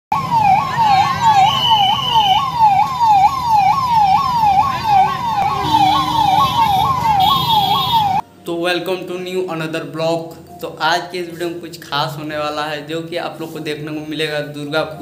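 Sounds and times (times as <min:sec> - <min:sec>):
ambulance siren yelping: 0:00.1 - 0:08.2.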